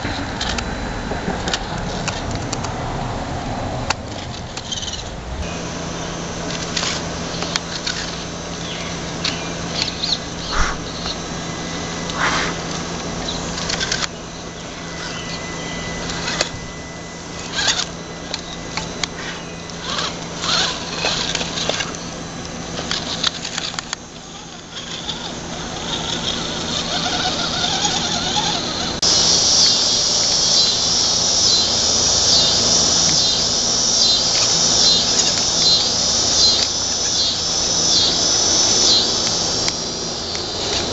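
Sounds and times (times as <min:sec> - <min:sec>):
electric motor whining: 0:00.0 - 0:40.9
insect chorus: 0:04.6 - 0:40.9
tyres scraping on rock: 0:17.4 - 0:29.1.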